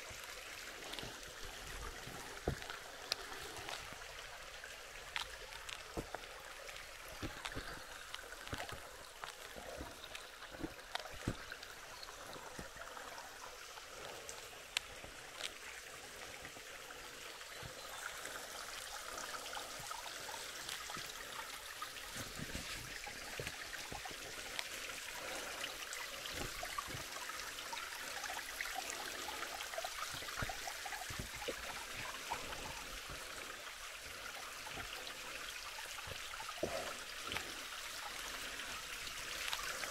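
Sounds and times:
creek running: 0:00.0 - 0:39.9.

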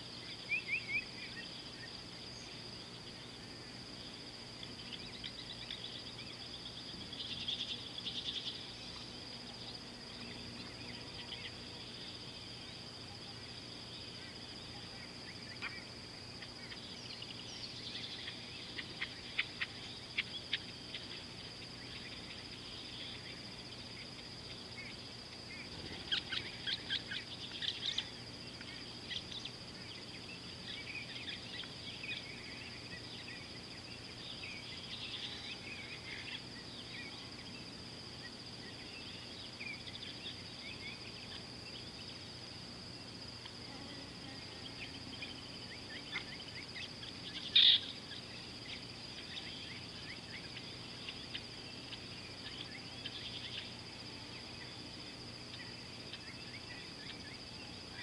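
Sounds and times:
high-pitched insect drone: 0:00.0 - 0:58.0
bird chirps and twitters: 0:47.3 - 0:48.0.

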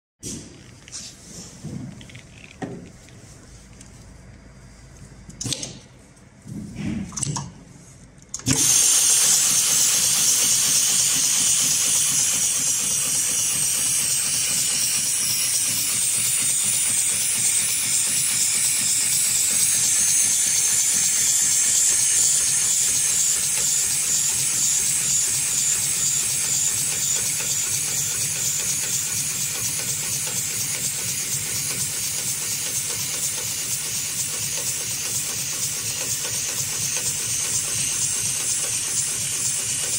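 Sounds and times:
sewing machine running hiss: 0:08.4 - 0:39.9.

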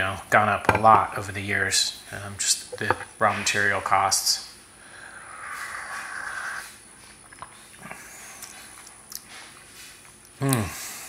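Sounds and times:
person humming mm: 0:10.4 - 0:11.0.

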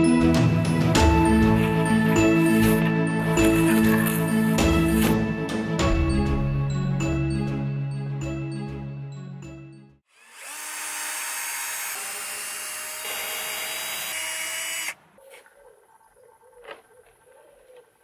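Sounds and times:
power drill boring into wood: 0:10.1 - 0:15.0.

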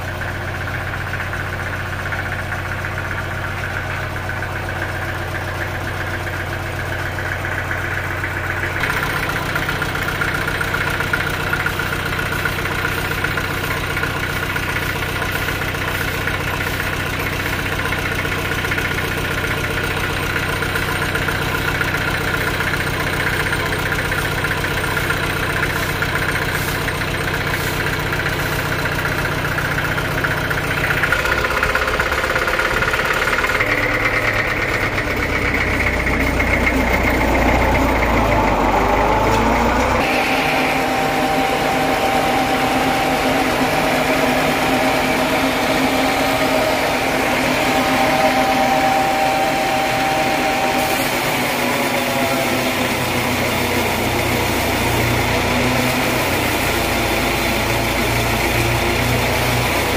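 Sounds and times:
diesel engine running sawmill: 0:00.0 - 0:59.9.

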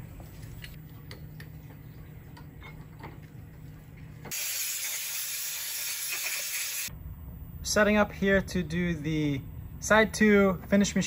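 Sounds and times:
loud steady hiss: 0:04.3 - 0:06.9
low steady hum: 0:06.9 - 0:11.0.

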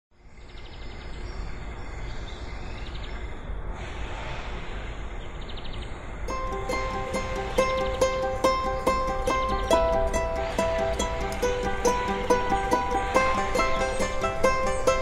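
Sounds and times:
steady rushing noise: 0:05.9 - 0:15.0
high trilling bird chirps: 0:06.3 - 0:15.0
plucked-string music: 0:06.3 - 0:15.0.

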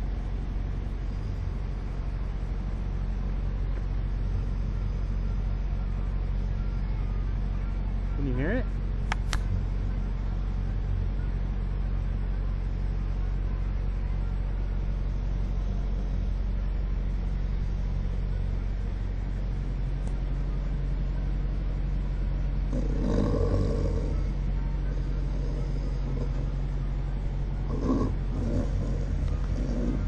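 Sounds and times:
snoring: 0:22.7 - 0:24.4, 0:25.0 - 0:26.5, 0:27.7 - 0:30.0.

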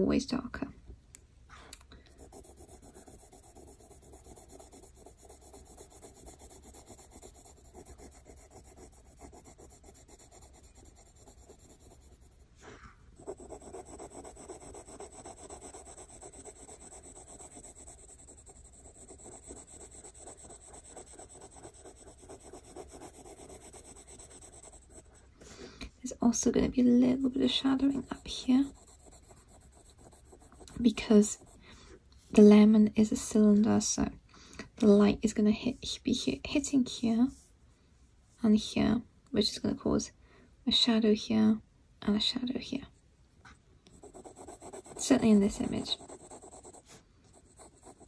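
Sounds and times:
pencil scratching on paper: 0:02.1 - 0:12.5, 0:13.2 - 0:25.3, 0:27.1 - 0:31.6, 0:43.9 - 0:48.0.

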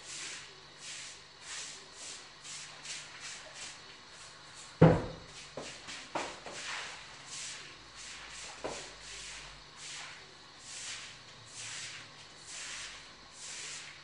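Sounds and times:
mop swishing on wet tiled floor: 0:00.0 - 0:14.0
knock: 0:04.8 - 0:05.2.

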